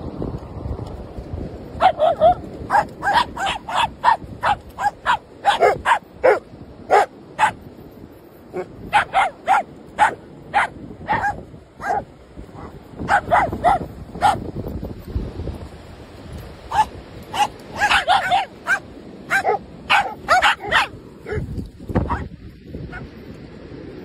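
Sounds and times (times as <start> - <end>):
dog barking in high yaps: 1.8 - 7.6, 8.6 - 14.4, 16.7 - 22.3.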